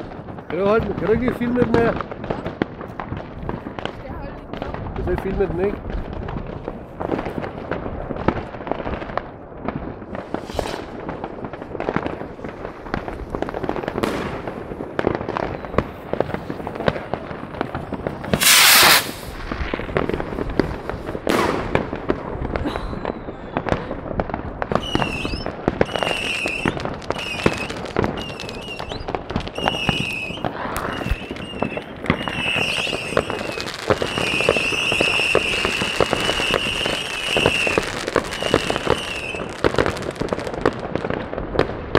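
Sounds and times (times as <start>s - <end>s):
distant fireworks bangs and pops: 0.0s - 41.9s
loud hissing firework burst: 10.2s - 11.1s, 18.3s - 19.6s, 24.8s - 39.7s.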